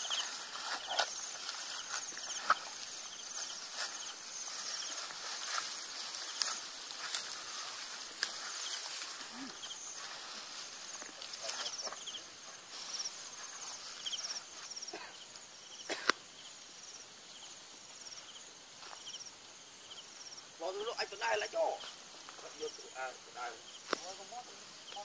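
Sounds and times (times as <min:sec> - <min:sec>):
footsteps through grass: 0:00.0 - 0:14.9
insects chirping in trills: 0:00.0 - 0:25.0.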